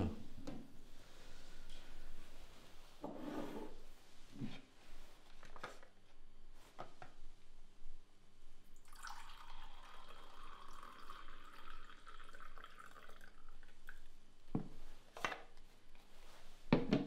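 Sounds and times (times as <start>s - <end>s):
liquid pouring into mug: 8.8s - 14.1s.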